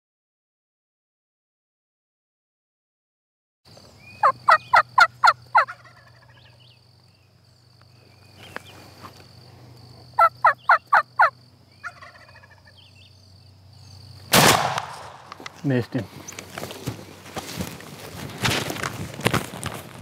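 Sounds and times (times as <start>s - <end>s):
turkey gobbling: 4.2s - 6.7s, 10.2s - 13.0s.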